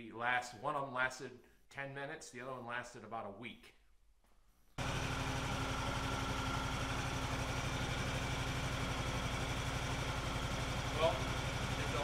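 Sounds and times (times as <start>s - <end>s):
engine idling: 4.8s - 12.0s.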